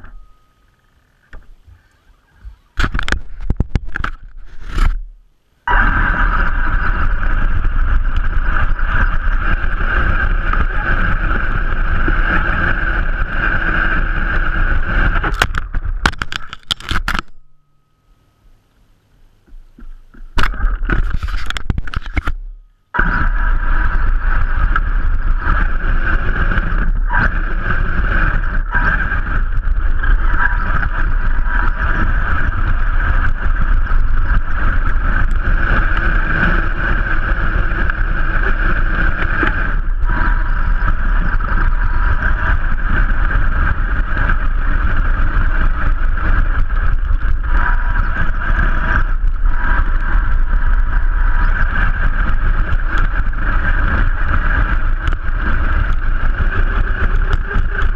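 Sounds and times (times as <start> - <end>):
tyres rumbling on dirt: 19.6 - 57.9.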